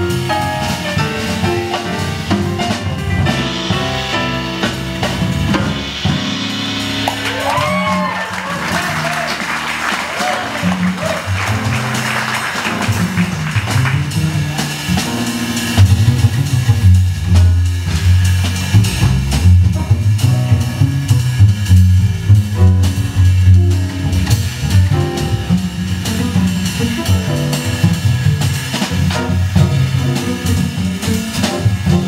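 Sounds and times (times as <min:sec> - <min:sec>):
drum kit cymbals and drums: 0:00.0 - 0:32.0
plucked double bass jazz lines: 0:00.0 - 0:32.0
applause: 0:07.1 - 0:14.1.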